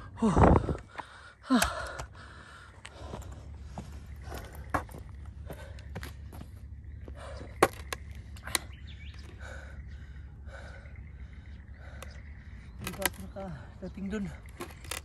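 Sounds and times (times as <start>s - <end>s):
man panting: 0.0s - 6.1s, 9.2s - 12.8s.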